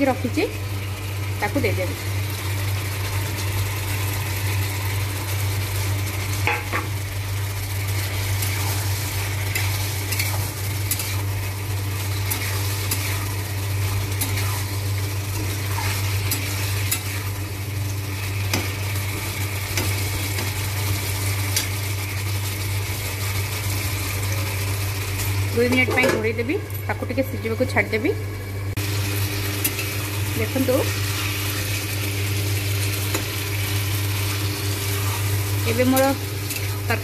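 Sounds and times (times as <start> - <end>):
frying sizzle: 0.0 - 37.0
steady low hum: 0.0 - 37.0
metal spatula scraping a pan: 14.1 - 17.4.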